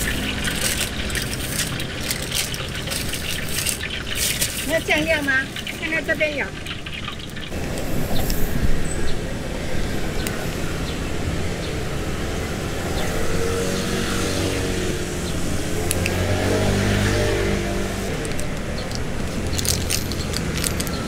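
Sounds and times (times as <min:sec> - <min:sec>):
vehicle engine passing by: 0:10.7 - 0:21.0.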